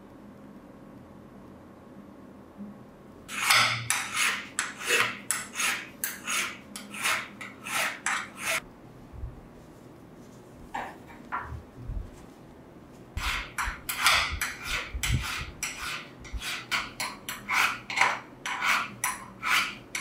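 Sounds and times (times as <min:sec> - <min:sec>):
hand file scraping steel: 0:03.3 - 0:08.6, 0:13.2 - 0:20.0.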